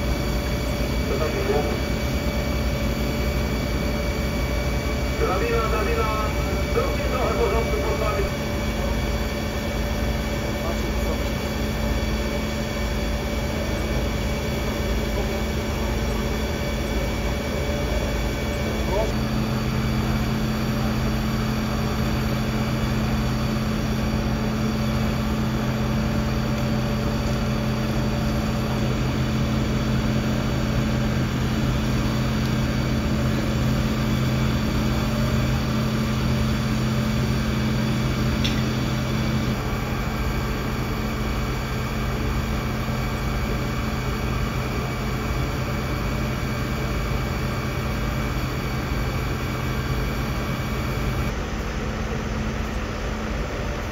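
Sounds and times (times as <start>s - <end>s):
diesel engine droning: 0.0s - 51.4s.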